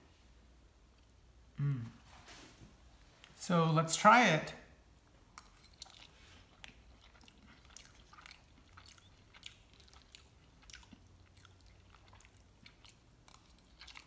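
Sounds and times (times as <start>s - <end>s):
faint chewing with crunches: 5.1s - 14.0s.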